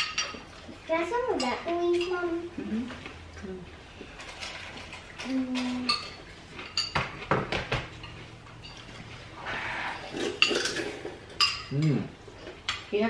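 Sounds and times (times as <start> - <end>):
spoons clinking against bowls: 0.0 - 0.4, 1.4 - 2.2, 5.6 - 7.2, 8.0 - 9.2, 10.0 - 12.0
dishes knocking on wooden table: 6.9 - 7.9.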